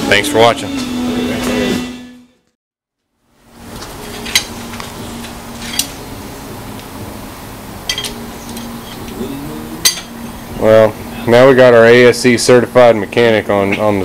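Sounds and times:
low hum: 0:03.3 - 0:12.7.

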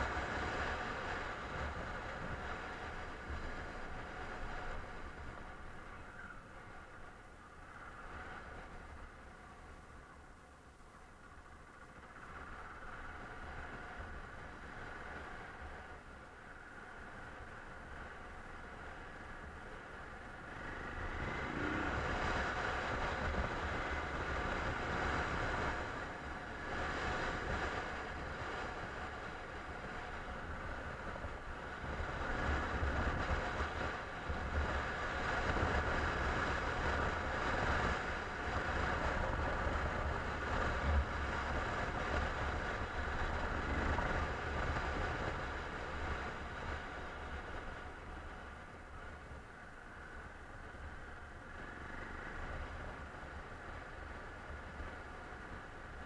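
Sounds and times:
wind rumbling on microphone: 0:00.0 - 0:56.0
motorcycle engine running: 0:11.4 - 0:56.0.

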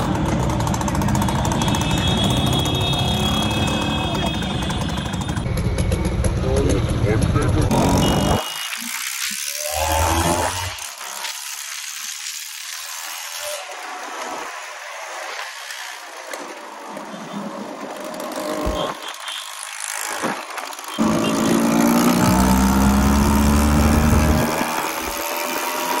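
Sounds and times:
small motorbike engine revving: 0:07.6 - 0:16.4, 0:18.1 - 0:26.0.

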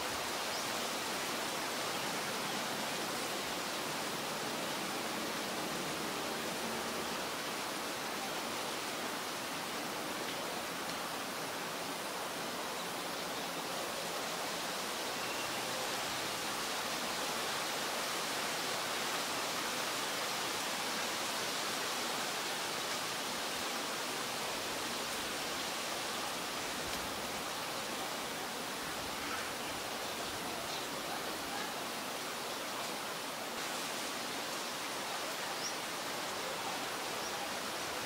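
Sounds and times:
steady background hiss: 0:00.0 - 0:38.0.

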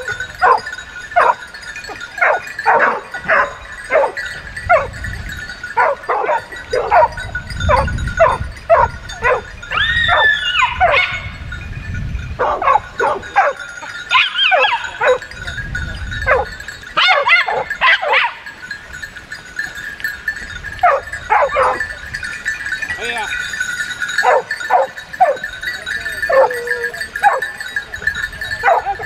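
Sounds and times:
dog barking: 0:00.0 - 0:01.4, 0:02.2 - 0:04.9, 0:05.8 - 0:09.5, 0:10.1 - 0:11.3, 0:12.4 - 0:15.3, 0:16.3 - 0:18.4, 0:20.8 - 0:21.9, 0:24.2 - 0:25.5, 0:26.3 - 0:26.6, 0:27.2 - 0:27.5, 0:28.6 - 0:29.0
dog yelping: 0:00.0 - 0:05.0, 0:05.8 - 0:11.3, 0:12.4 - 0:15.3, 0:16.3 - 0:18.4, 0:20.8 - 0:21.9, 0:24.2 - 0:25.5, 0:26.2 - 0:27.5, 0:28.6 - 0:29.0.

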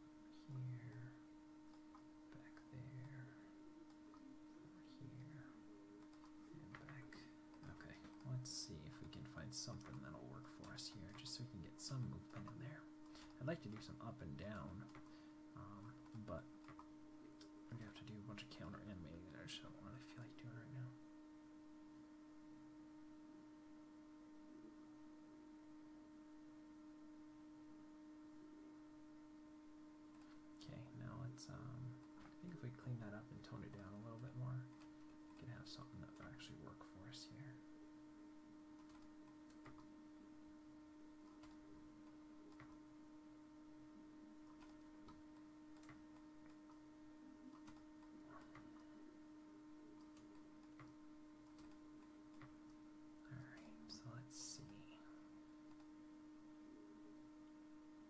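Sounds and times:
steady electrical hum: 0:00.0 - 0:58.0
computer mouse clicks: 0:38.8 - 0:39.9, 0:44.4 - 0:46.8, 0:50.0 - 0:52.8, 0:55.6 - 0:55.9.

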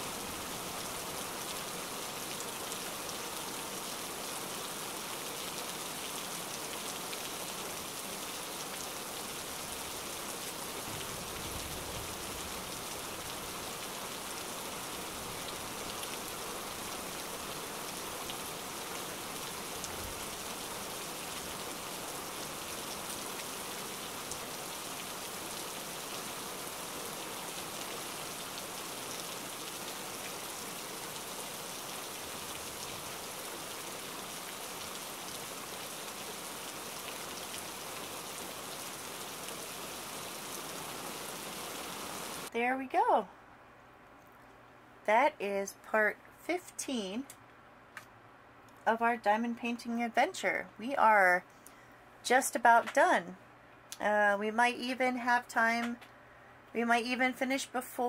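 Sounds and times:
rain pattering: 0:00.0 - 0:42.5.

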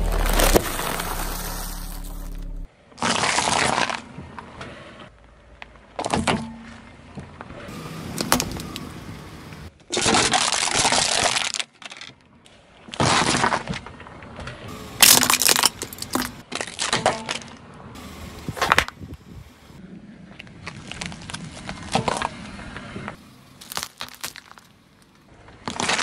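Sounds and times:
sharp crack: 0:00.0 - 0:04.0
tyre crushing objects: 0:00.0 - 0:04.0, 0:15.0 - 0:17.5, 0:23.6 - 0:24.8.

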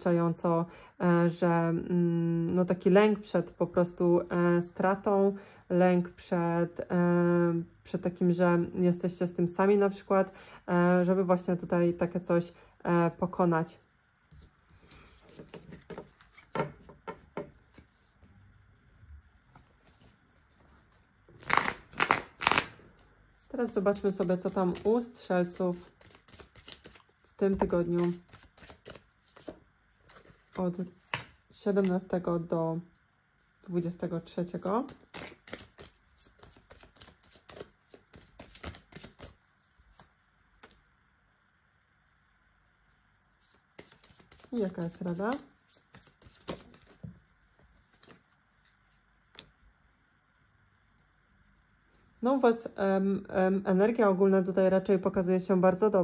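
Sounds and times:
cards shuffling: 0:14.3 - 0:18.2, 0:19.5 - 0:22.8, 0:23.4 - 0:32.0, 0:34.6 - 0:40.9, 0:43.4 - 0:49.5
cards clicking and tapping: 0:25.8 - 0:30.3, 0:34.8 - 0:40.8, 0:43.8 - 0:47.2.

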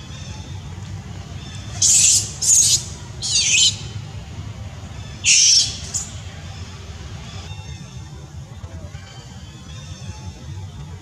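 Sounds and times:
monkey screaming: 0:01.4 - 0:04.1, 0:05.0 - 0:06.6
monkey squeak: 0:01.5 - 0:03.9, 0:05.2 - 0:06.2.

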